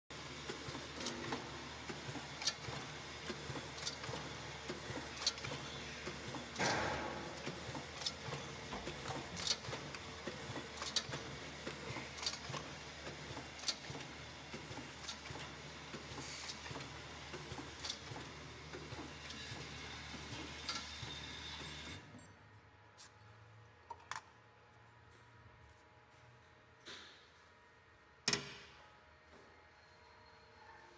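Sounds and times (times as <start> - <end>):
mechanical clicks and ticks: 0.4 - 20.9.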